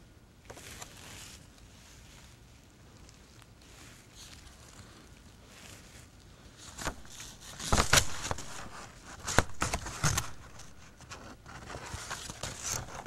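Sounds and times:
paper cards rustling: 0.5 - 1.7, 3.1 - 13.0
cards tapping and clicking: 6.8 - 10.7.

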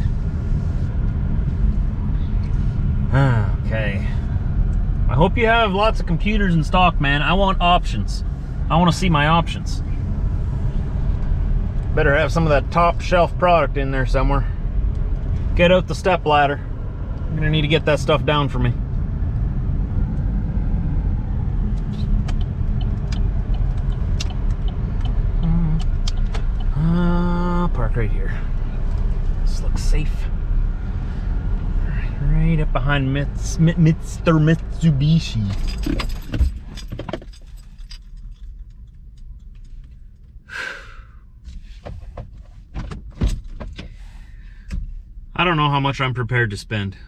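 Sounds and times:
engine and road rumble: 0.0 - 47.0
car keys jangling: 35.0 - 40.3.

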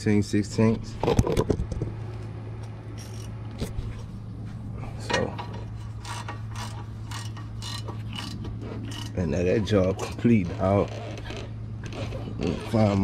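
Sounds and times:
steady low hum: 0.0 - 13.0
ratchet wrench clicking: 6.0 - 9.1.

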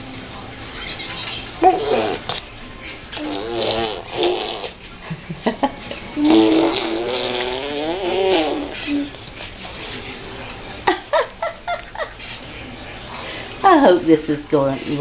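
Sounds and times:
baby vocalizing: 1.6 - 2.4, 3.2 - 4.8, 6.2 - 9.1.

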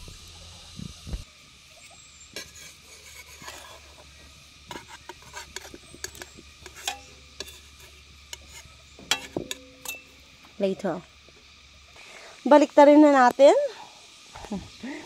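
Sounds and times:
metal spoon scraping frying pan: 2.4 - 10.2.

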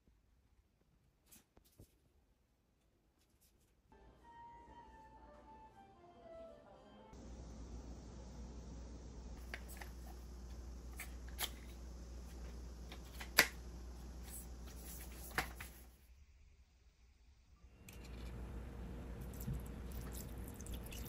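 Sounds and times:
steady low hum: 7.1 - 21.0.

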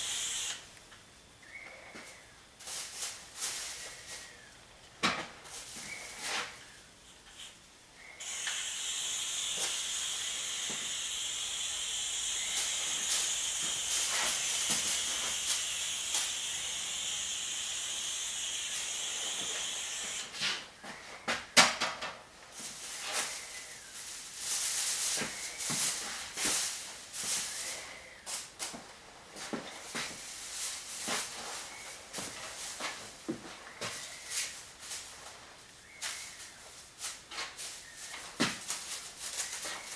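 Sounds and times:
aerosol spray can hissing: 0.0 - 0.7, 8.2 - 20.4
plastic sheeting rustling: 22.5 - 39.9.

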